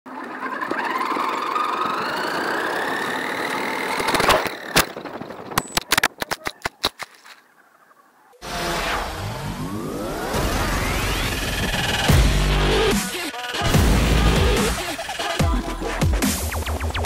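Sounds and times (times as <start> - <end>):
sharp clicks and knocks: 4.0 - 7.4
intro music: 10.9 - 17.0.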